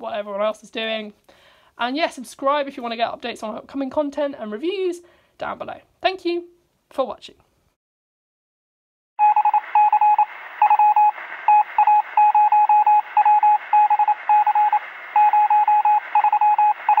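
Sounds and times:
morse code beeps: 9.2s - 17.0s
radio static hiss: 9.2s - 17.0s.

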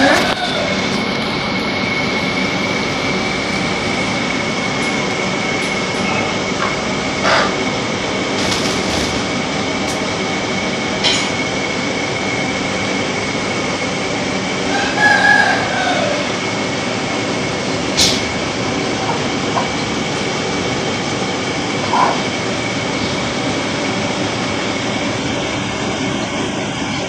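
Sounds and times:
rooster crowing: 0.0s - 1.1s, 14.6s - 16.5s
mechanical drone with high whine: 0.0s - 27.0s.

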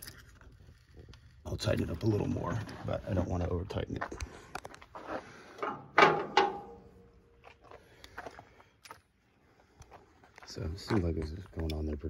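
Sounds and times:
loud clunk: 5.6s - 6.9s.

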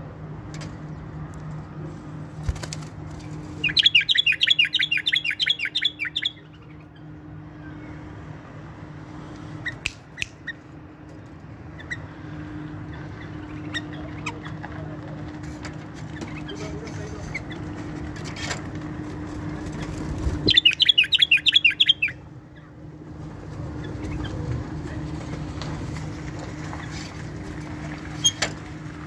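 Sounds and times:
bird chattering: 3.6s - 6.8s, 20.4s - 22.2s.

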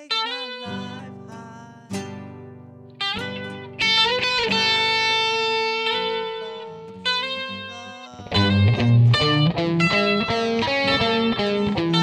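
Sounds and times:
plucked guitar notes: 0.0s - 12.0s.

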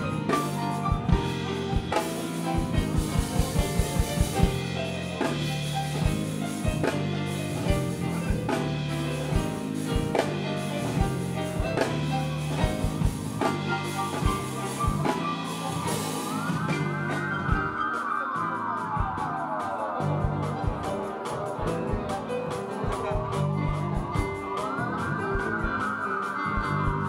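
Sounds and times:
electric bass notes: 0.0s - 17.7s
drum kit with cymbals: 0.0s - 27.0s
grand piano chords: 0.0s - 27.0s.

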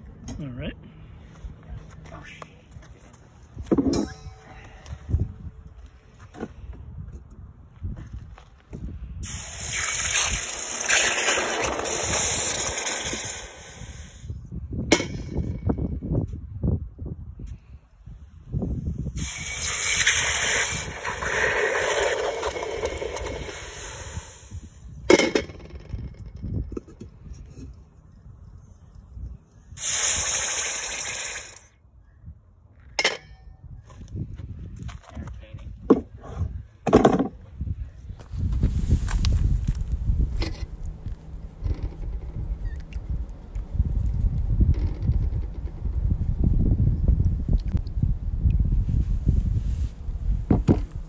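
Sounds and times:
steam hiss and sizzle: 9.2s - 14.3s, 19.2s - 24.8s, 29.8s - 31.6s.

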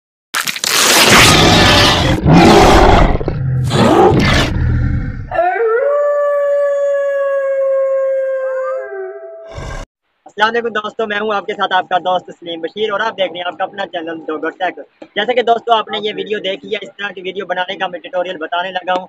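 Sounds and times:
roaring growls: 1.1s - 5.4s, 9.4s - 9.9s
wolf-like howl: 3.7s - 9.8s.

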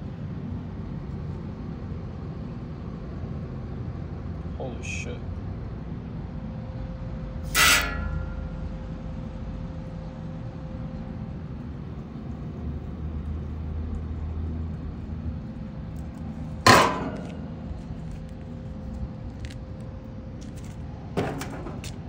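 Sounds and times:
steady low hum: 0.0s - 22.0s
metal clangs: 7.5s - 8.6s, 16.6s - 17.6s.

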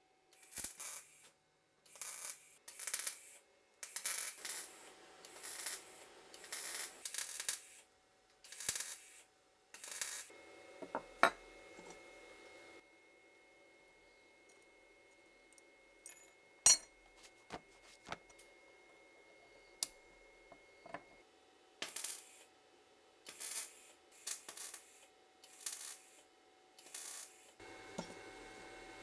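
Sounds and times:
metal parts clinking on vise: 16.1s - 16.9s.

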